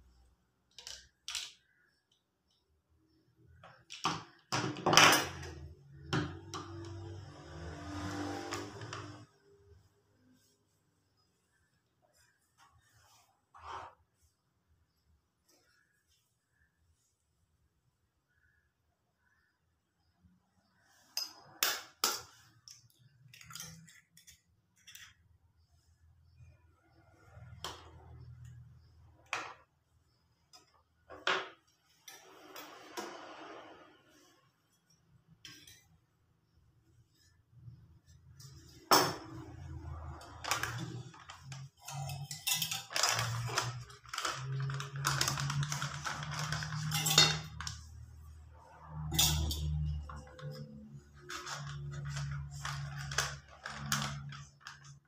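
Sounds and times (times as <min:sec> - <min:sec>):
utensils clattering and scraping: 0:21.0 - 0:25.4, 0:31.4 - 0:36.1, 0:37.6 - 0:55.0
plastic packet rustling: 0:42.9 - 0:47.1, 0:51.2 - 0:55.0.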